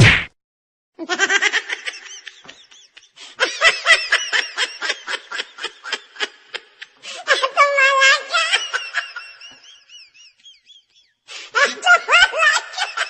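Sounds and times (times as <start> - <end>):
whack: 0.0 - 0.4
rapid high-pitched laughing: 1.0 - 13.0.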